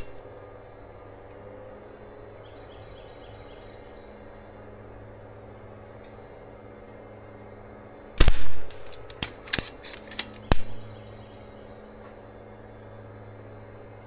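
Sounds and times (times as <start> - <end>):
air rifle shots: 8.2 - 10.8.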